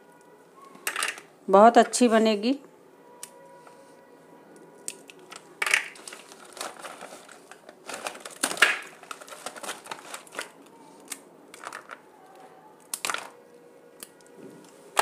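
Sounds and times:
plastic sheet crinkling: 0:05.2 - 0:12.1.

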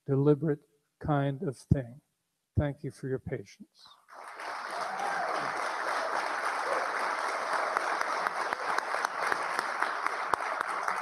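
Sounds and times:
crowd applauding: 0:04.1 - 0:11.0.

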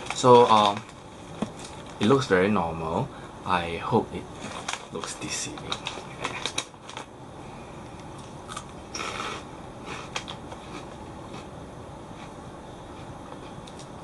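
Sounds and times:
crackers crunching: 0:00.0 - 0:02.2, 0:04.3 - 0:07.1, 0:08.0 - 0:11.5
foil snack bag crinkling: 0:00.0 - 0:02.2, 0:04.4 - 0:07.1.

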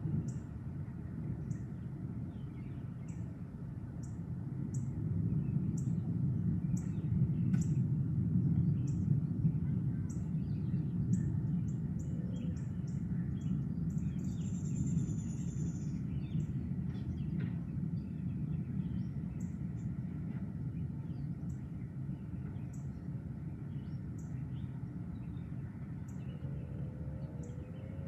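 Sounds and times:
low roll of thunder: 0:25.8 - 0:28.0.

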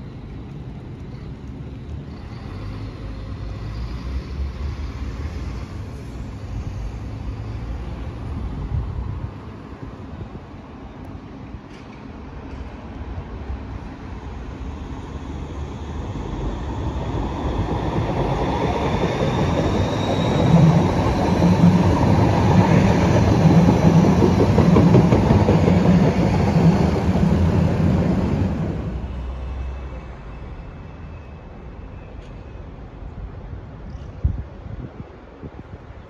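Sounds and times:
train wheels rumbling over rails: 0:11.4 - 0:29.5
faint high wheel squeal: 0:18.3 - 0:21.4, 0:29.0 - 0:32.8.

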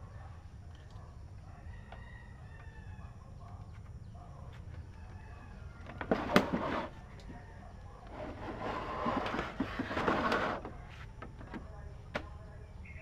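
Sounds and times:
rooster crowing: 0:01.5 - 0:03.2, 0:04.8 - 0:06.1.

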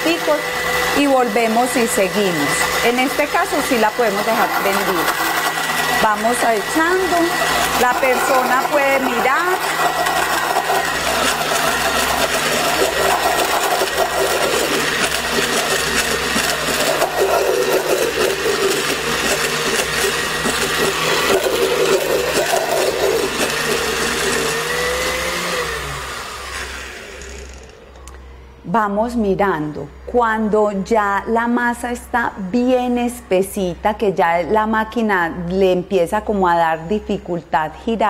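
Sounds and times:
blender grinding: 0:00.0 - 0:28.2.

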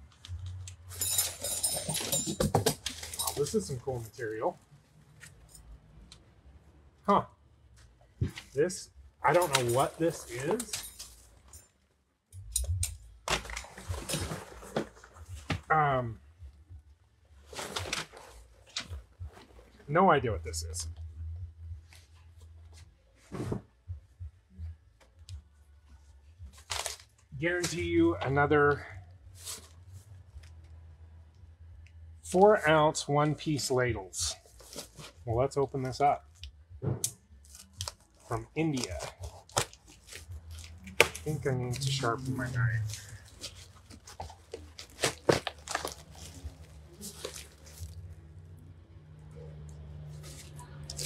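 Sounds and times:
package rustling: 0:37.4 - 0:48.1
cardboard scrape: 0:38.8 - 0:48.0.

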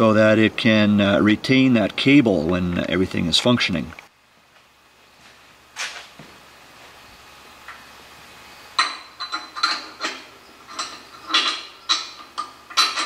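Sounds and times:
metal pulley clinking on bracket: 0:08.8 - 0:13.0.

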